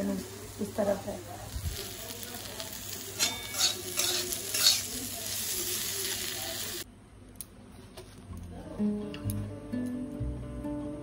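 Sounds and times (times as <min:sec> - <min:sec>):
okra sizzling in a pan: 0:00.0 - 0:06.9
metal spatula scraping: 0:03.2 - 0:05.1.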